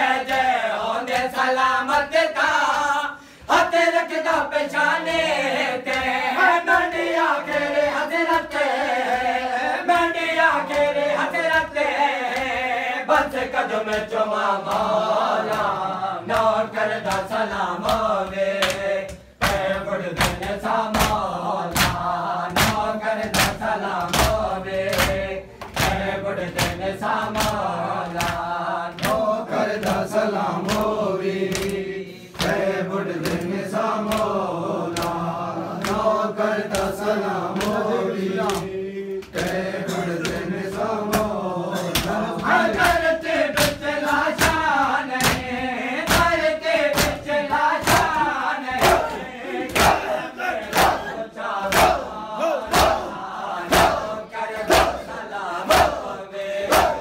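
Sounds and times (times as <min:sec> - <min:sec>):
men chanting in unison: 0:00.0 - 0:57.0
hands beating chests: 0:16.3 - 0:31.8, 0:37.6 - 0:51.1, 0:56.7 - 0:57.0.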